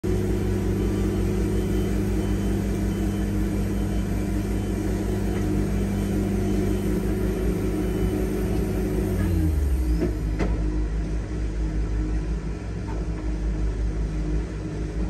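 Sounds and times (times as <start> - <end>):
sawmill engine running: 0.0 - 10.6.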